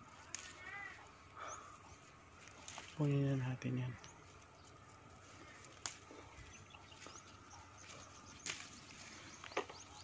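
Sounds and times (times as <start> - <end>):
faint outdoor background: 0.0 - 10.0
chili stems snapping: 0.1 - 1.1, 2.4 - 3.0, 5.5 - 6.3, 7.8 - 9.9.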